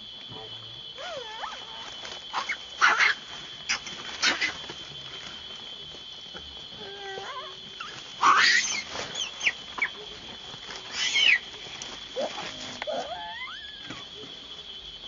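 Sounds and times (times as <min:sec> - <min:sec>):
baby monkey screaming: 0:01.0 - 0:04.6, 0:06.8 - 0:10.0, 0:10.9 - 0:11.5, 0:12.2 - 0:14.1
monkey whimpering calls: 0:10.9 - 0:11.4, 0:12.2 - 0:14.0.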